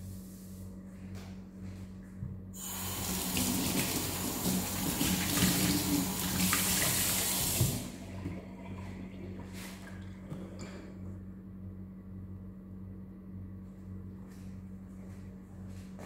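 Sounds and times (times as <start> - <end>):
tap water running into sink: 2.6 - 8.9
cloth rinsed and wrung: 2.7 - 10.3.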